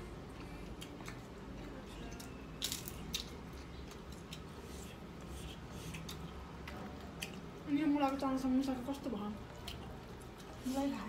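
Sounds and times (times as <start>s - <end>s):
crunching fried cracker: 2.2s - 4.5s.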